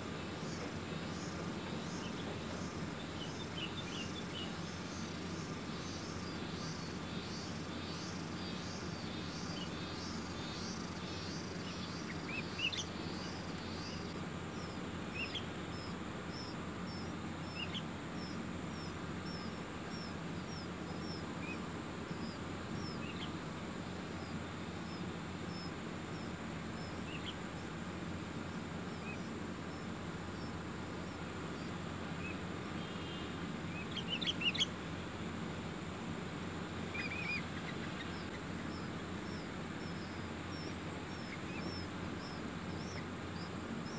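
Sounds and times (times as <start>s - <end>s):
high pulsing insect trill: 0.0s - 43.9s
insect short chirps: 0.0s - 43.9s
bird chirps: 0.4s - 23.4s, 32.2s - 34.7s, 36.8s - 43.9s.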